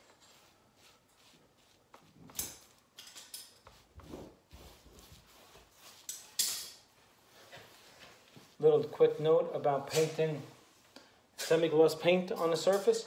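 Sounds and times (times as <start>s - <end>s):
paintbrush brushing swishes: 0.0s - 2.8s, 3.6s - 10.9s.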